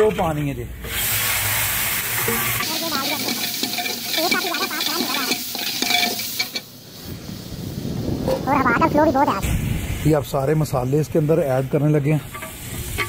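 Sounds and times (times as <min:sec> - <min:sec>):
water hissing in hot fat: 0:00.8 - 0:13.0
metal ladle scraping pot: 0:02.1 - 0:06.7, 0:12.2 - 0:13.0.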